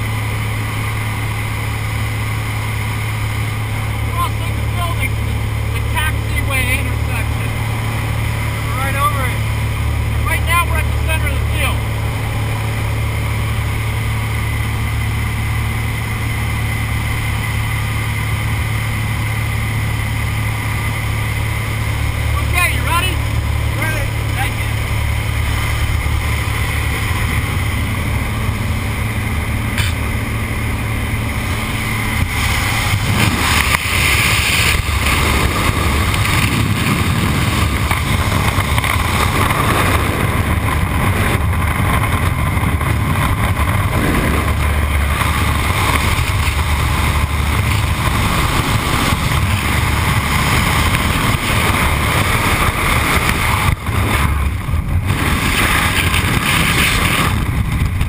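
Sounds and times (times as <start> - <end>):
light aircraft engine: 0.0 - 58.0
wind rushing: 19.6 - 58.0.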